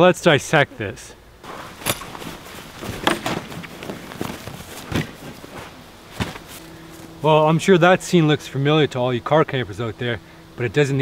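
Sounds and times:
rustling of camping gear: 1.4 - 7.3
sharp knocks: 2.8 - 4.0.

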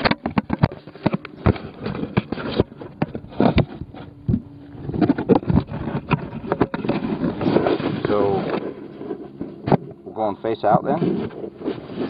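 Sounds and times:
device handling knocks and clicks: 0.0 - 7.5
rubbing against jacket: 10.9 - 12.0.

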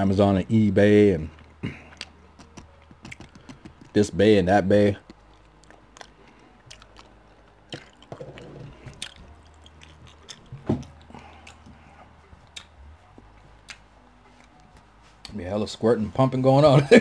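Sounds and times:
person chewing: 1.4 - 3.9, 5.0 - 14.9
wet mouth clicks and smacks: 1.9 - 3.9, 5.0 - 11.7, 12.4 - 12.8.

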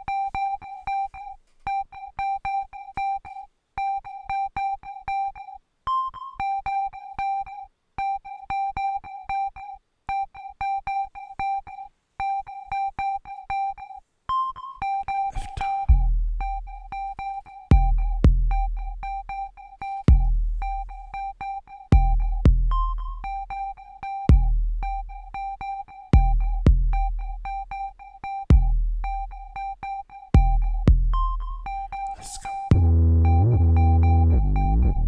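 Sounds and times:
synthesizer repeated notes: 14.6 - 35.0
deep bass: 15.9 - 17.0, 17.7 - 19.0, 20.1 - 20.9, 22.0 - 23.2, 26.2 - 27.2, 30.4 - 31.9, 32.7 - 35.0.

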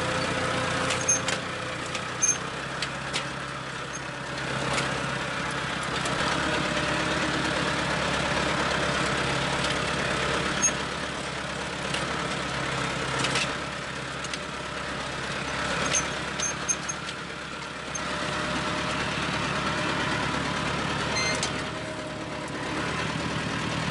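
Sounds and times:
tractor engine running: 0.0 - 23.9
sharp clanks from cultivator: 0.2 - 5.0, 10.5 - 10.8, 11.8 - 12.1, 13.1 - 14.5, 15.5 - 17.2, 21.1 - 21.8.

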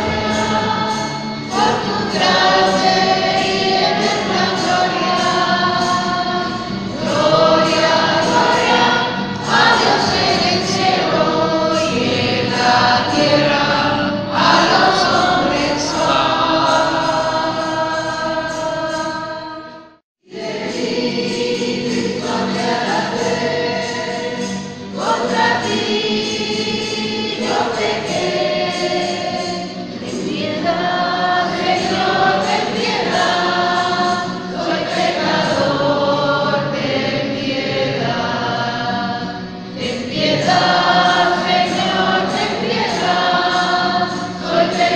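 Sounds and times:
choir singing a hymn: 0.0 - 44.9.

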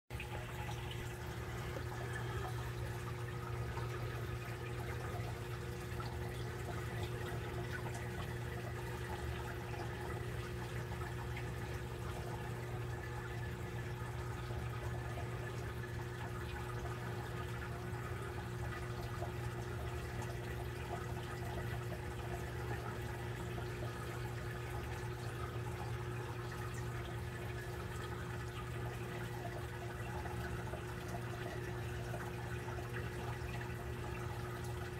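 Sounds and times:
low electric hum: 0.1 - 34.9
water trickling: 0.1 - 34.9.

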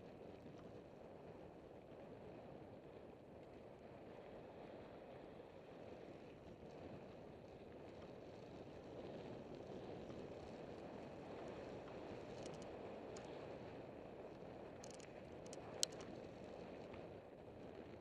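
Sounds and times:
light clicks: 12.3 - 13.4, 14.8 - 16.1.

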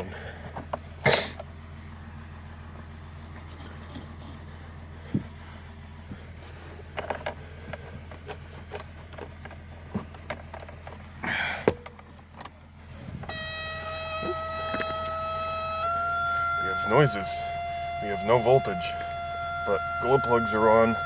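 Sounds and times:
electrical buzzer tone: 13.3 - 21.0.

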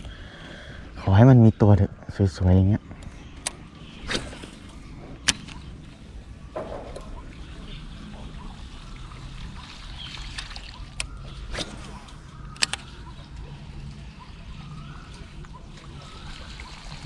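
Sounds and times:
water trickling and sloshing: 3.7 - 17.0.

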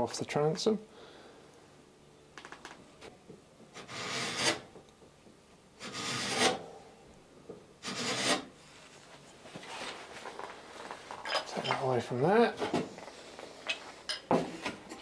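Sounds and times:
chisel scraping wood: 3.7 - 4.7, 5.8 - 6.6, 7.8 - 8.6.

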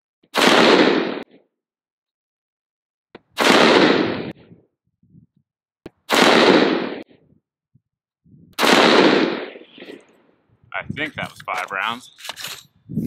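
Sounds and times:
rifle gunshots: 0.3 - 1.4, 3.4 - 4.4, 6.1 - 7.2, 8.6 - 10.1.

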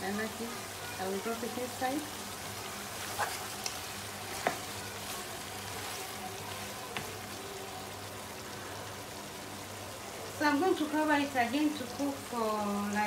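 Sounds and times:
food sizzling in frying pan: 0.0 - 13.0.

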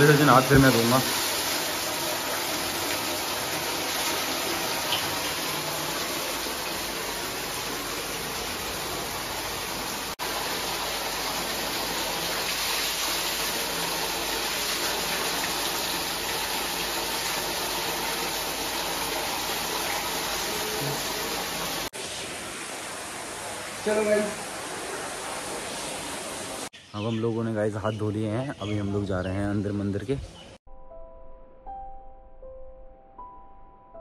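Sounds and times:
water pouring and splashing: 0.0 - 26.7.

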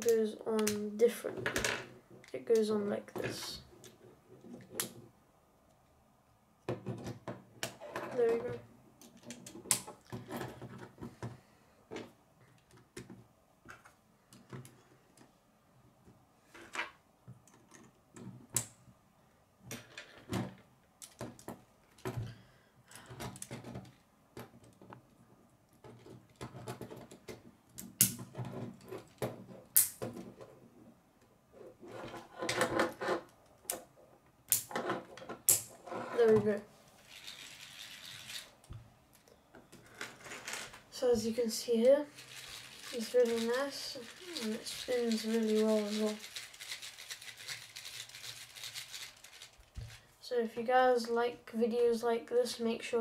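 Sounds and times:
plastic toy pieces snapping together: 29.8 - 30.0, 34.5 - 34.7, 35.5 - 35.7.

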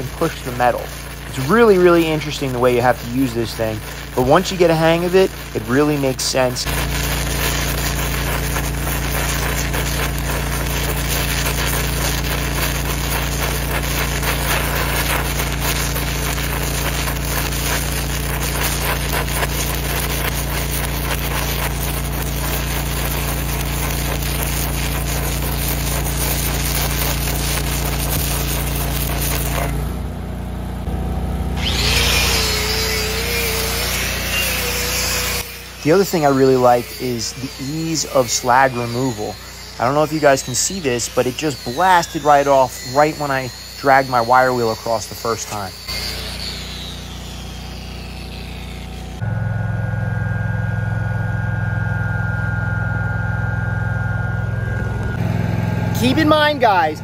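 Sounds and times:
arc gouging crackling and sputtering: 0.0 - 30.0, 31.6 - 49.3, 54.2 - 57.0
welder engine drone: 0.0 - 57.0.

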